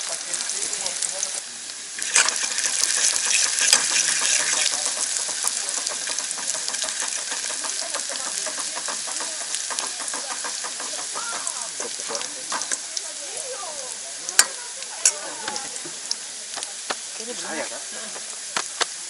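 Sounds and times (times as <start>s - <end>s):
shallots sizzling in hot oil: 0.0s - 19.0s
metal utensil scraping a pot: 2.0s - 11.0s.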